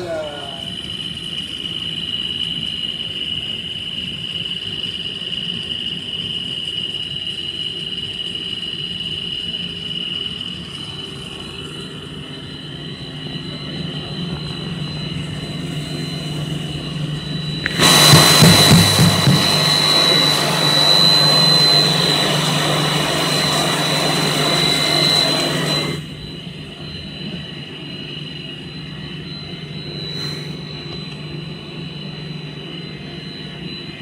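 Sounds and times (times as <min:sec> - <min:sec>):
high steady machine whine: 0:00.0 - 0:34.0
low motor hum: 0:10.6 - 0:34.0.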